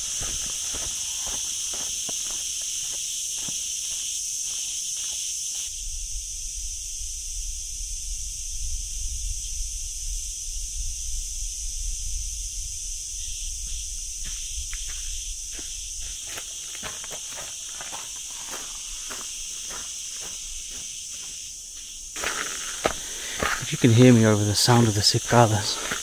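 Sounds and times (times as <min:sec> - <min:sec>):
footsteps crunching on dirt: 0:00.0 - 0:05.7, 0:13.7 - 0:26.0
cicadas buzzing: 0:00.0 - 0:26.0.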